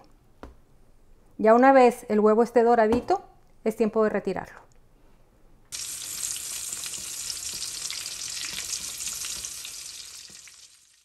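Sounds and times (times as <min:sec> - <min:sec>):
food frying in hot oil: 0:05.7 - 0:11.0.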